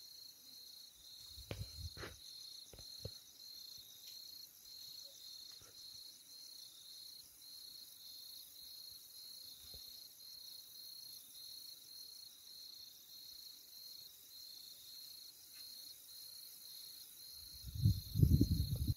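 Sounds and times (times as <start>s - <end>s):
crickets chirping: 0.0s - 18.9s.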